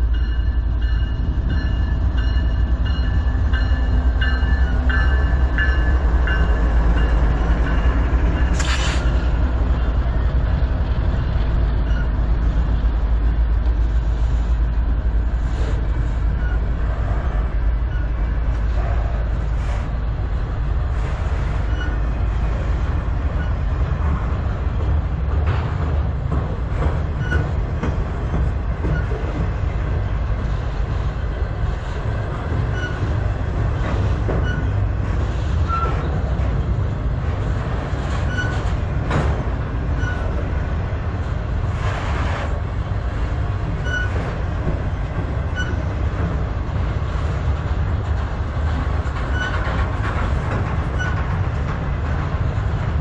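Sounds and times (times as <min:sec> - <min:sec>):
steel wheels rumbling on rail: 0:00.0 - 0:53.0
wheel squeal: 0:21.6 - 0:22.0, 0:32.7 - 0:33.1, 0:34.4 - 0:34.8, 0:38.2 - 0:38.7, 0:43.8 - 0:44.2, 0:49.3 - 0:49.6, 0:51.0 - 0:51.2
clicks over rail joints: 0:47.1 - 0:52.9.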